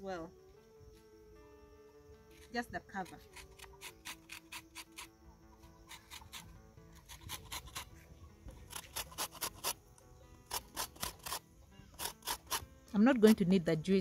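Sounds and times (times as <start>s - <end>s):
soft background music: 0.0s - 14.0s
lemon scraping on metal grater: 5.8s - 7.9s, 8.6s - 9.8s, 10.5s - 12.6s.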